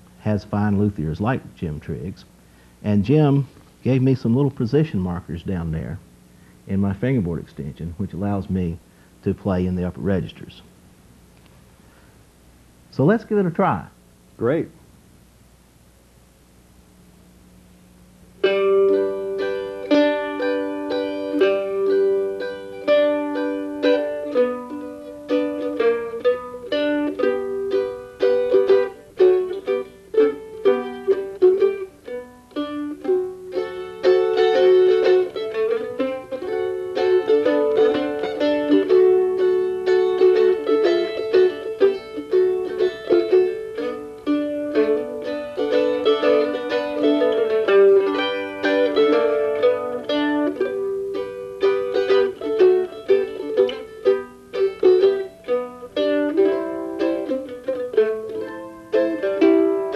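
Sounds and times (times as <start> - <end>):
mandolin melody: 0.0 - 2.1, 18.4 - 59.9.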